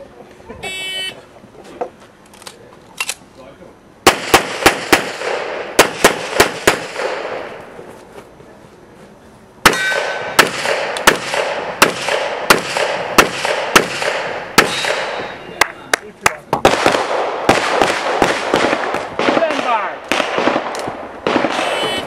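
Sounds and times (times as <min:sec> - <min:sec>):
pistol shots with echo: 0:04.0 - 0:07.6, 0:09.6 - 0:15.4, 0:16.6 - 0:21.9.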